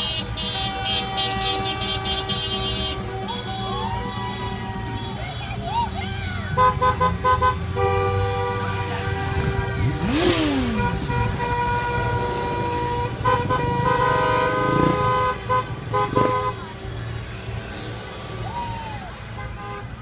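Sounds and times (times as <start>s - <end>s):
car horns honking: 0.0s - 18.4s, 19.1s - 20.0s
motorcycle engine passing: 9.2s - 11.4s.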